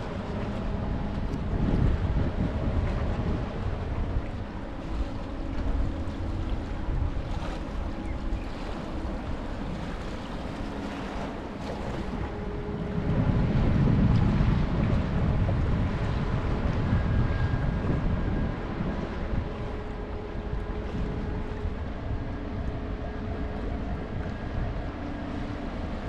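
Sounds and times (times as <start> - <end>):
small waves washing on shore: 0.0 - 17.3
faint low ferry hum: 0.0 - 26.0
wind buffeting the microphone: 0.0 - 26.0.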